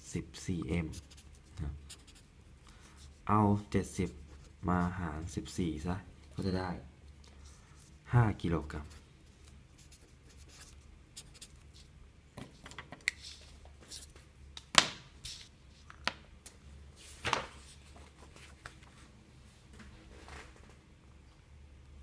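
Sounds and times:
pen writing on paper: 0.8s - 2.2s
paper sheet being handled: 17.0s - 19.1s.

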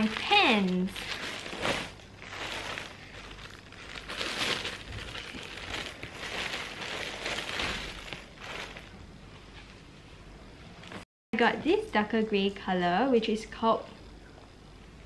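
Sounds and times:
plastic bag crinkling: 0.0s - 9.0s.

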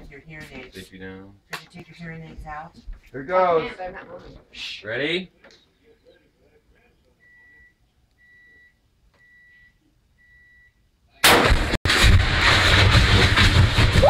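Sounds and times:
short beeps: 7.2s - 10.8s
huge explosion blast: 11.2s - 14.0s
roar of burning gas: 11.4s - 14.0s.

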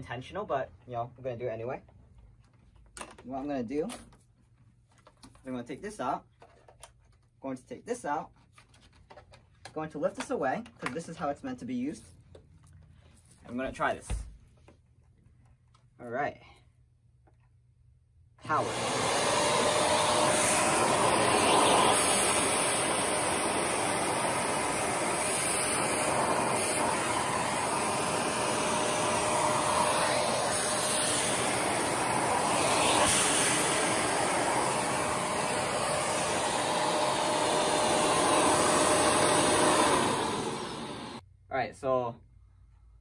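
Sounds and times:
vacuum cleaner running: 18.4s - 41.2s.

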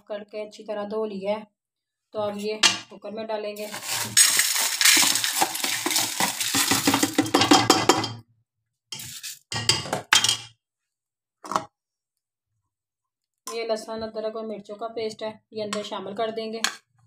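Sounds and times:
lentils pattering into metal pot: 3.6s - 8.1s
steel ladle scraping pot: 3.6s - 8.1s, 9.0s - 9.5s.

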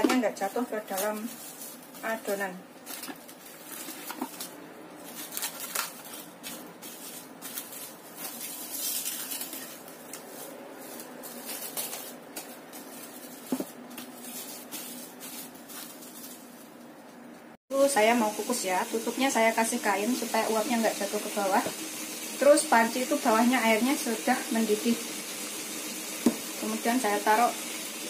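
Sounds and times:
plastic wrap crinkling: 0.2s - 17.5s.

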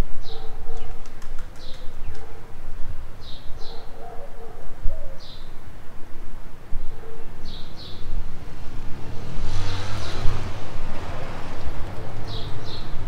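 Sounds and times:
vehicle passing: 7.2s - 13.0s.

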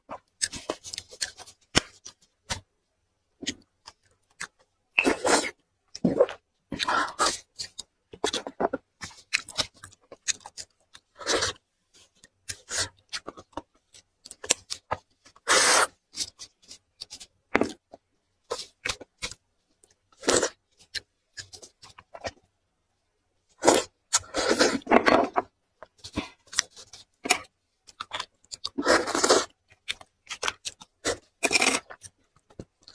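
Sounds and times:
wet chewing: 26.0s - 32.9s.

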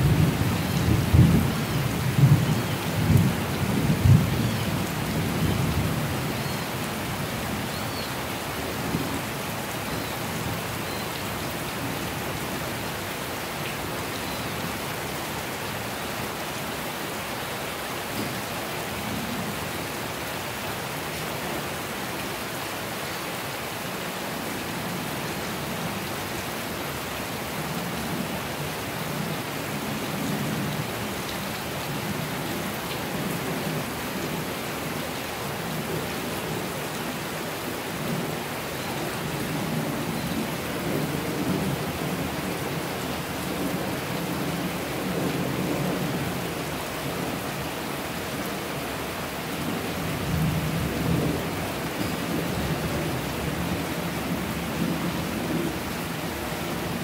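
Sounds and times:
rain on concrete roof: 0.0s - 57.0s.

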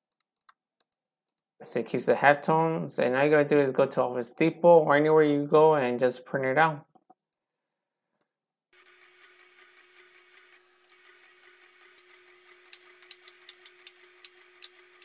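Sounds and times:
printer mechanical hum: 8.8s - 15.0s.

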